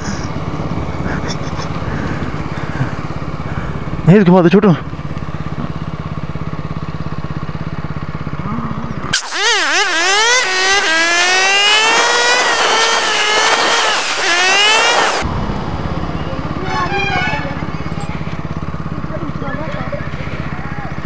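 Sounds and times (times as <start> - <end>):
motorcycle engine idling: 0.0 - 9.2, 15.3 - 21.0
loud wobbling pitched sound: 9.1 - 15.2.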